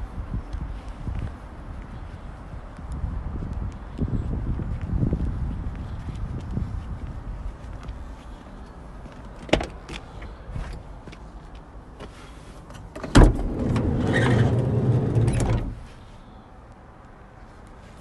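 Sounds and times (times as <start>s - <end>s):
van sliding door clunk and roll: 12.7s - 16.0s.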